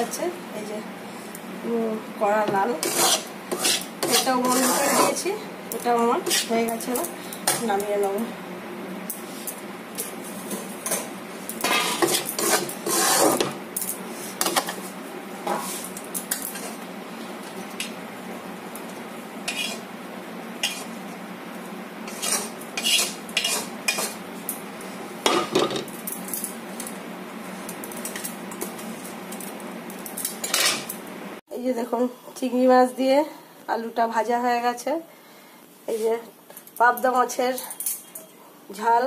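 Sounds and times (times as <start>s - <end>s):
metal spatula scraping a wok: 2.7s - 5.3s, 6.2s - 7.7s, 10.8s - 16.8s, 19.4s - 19.9s, 20.6s - 21.0s, 22.0s - 24.2s.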